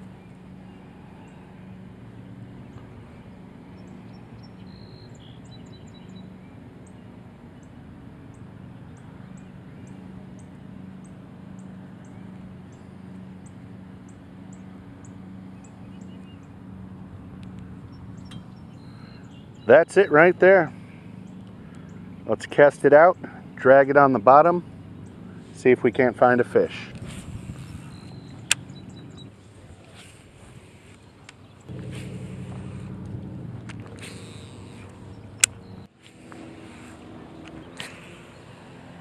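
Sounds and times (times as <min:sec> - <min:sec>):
steady low hum: 0:00.0 - 0:39.0
bird chirps: 0:02.2 - 0:16.6, 0:17.8 - 0:22.3, 0:27.5 - 0:30.1.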